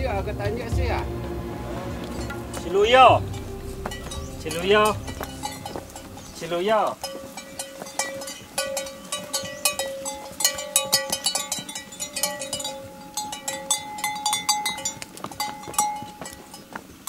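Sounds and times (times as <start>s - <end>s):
hooves knocking on stones: 0.0s - 17.0s
horse bells clinking and ringing: 2.2s - 17.0s.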